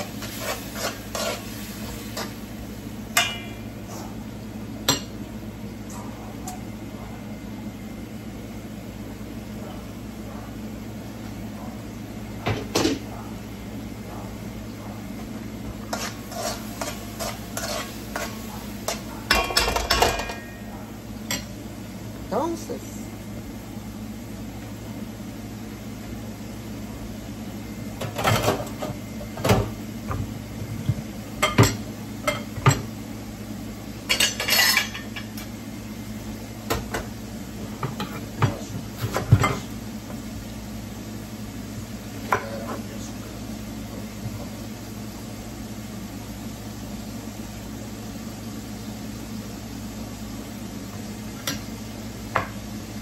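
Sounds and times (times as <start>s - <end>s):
dishes and utensils clinking: 15.9s - 20.6s, 34.1s - 35.4s.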